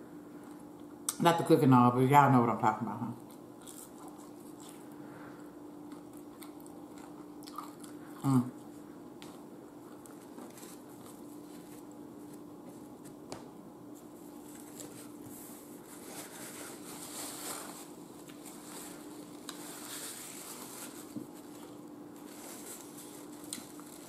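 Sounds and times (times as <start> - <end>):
steady low hum: 0.0 - 24.0
paper napkin rustling: 10.1 - 13.3, 13.9 - 24.0.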